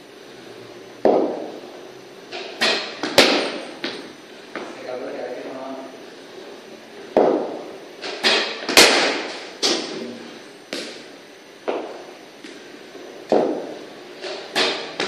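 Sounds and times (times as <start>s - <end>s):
sharp knocks with echo: 1.0s - 1.6s, 7.2s - 9.9s, 13.3s - 13.8s.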